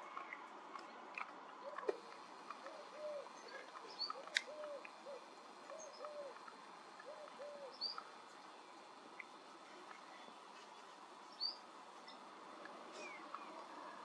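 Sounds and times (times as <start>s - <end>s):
bird cooing: 1.6s - 8.1s, 12.9s - 14.0s
small birds chirping: 1.6s - 14.0s.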